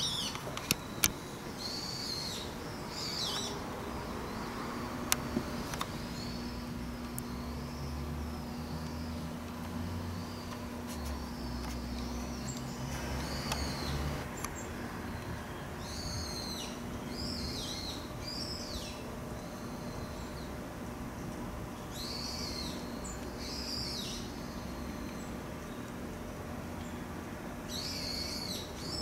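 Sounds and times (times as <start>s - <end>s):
bird calling: 0.0s - 20.6s
steady low hum: 0.0s - 29.0s.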